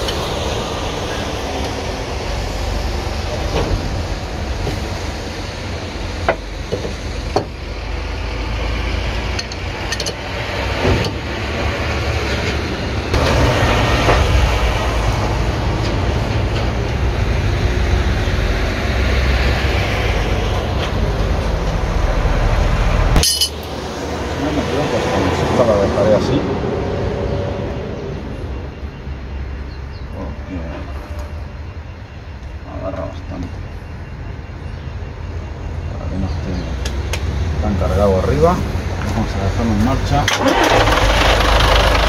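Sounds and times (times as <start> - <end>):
wrench clinking on metal: 23.2 - 23.7
diesel bus engine idling: 38.6 - 42.0.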